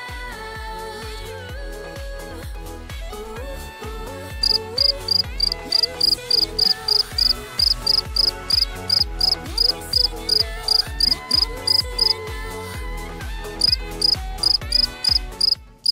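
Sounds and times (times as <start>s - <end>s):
music with sliding bass notes: 0.0s - 15.9s
cricket-like chirping: 4.4s - 12.2s, 13.6s - 15.9s.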